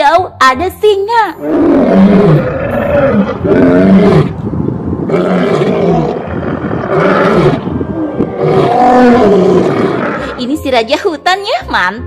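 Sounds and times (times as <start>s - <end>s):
lions roaring: 1.4s - 4.4s, 5.0s - 10.4s.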